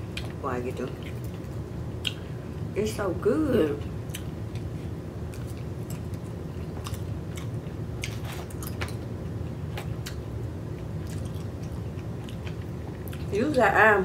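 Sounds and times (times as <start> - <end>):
steady low hum: 0.0 - 14.0
person chewing: 1.0 - 2.3, 4.1 - 13.3.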